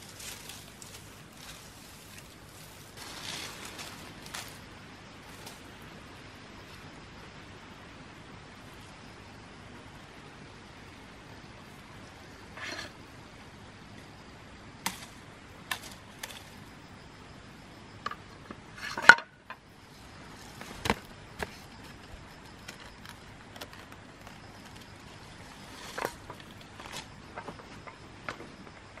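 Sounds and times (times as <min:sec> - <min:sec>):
knocks and rustling of handled fruit: 0:00.0 - 0:05.8, 0:20.3 - 0:28.6.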